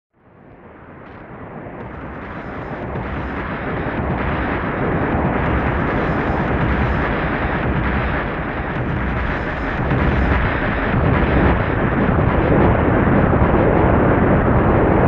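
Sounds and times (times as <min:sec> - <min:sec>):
deep noisy synthesizer drone: 0:00.8 - 0:15.0.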